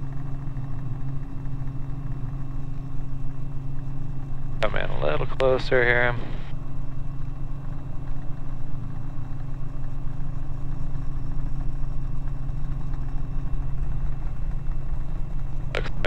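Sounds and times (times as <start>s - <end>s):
helicopter engine and rotors droning: 0.0s - 16.0s.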